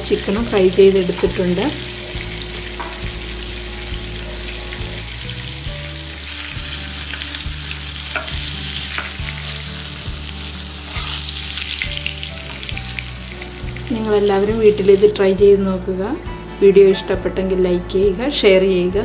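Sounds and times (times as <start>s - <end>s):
chicken sizzling in oil: 0.0s - 15.1s.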